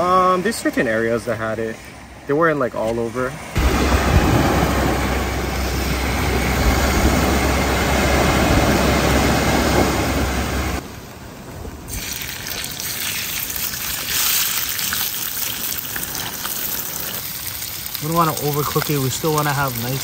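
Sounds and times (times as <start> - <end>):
surf: 0.0 - 10.8
low rumble: 3.5 - 11.9
wind buffeting microphone: 3.6 - 10.8
fish sizzling in a pan: 11.9 - 20.0.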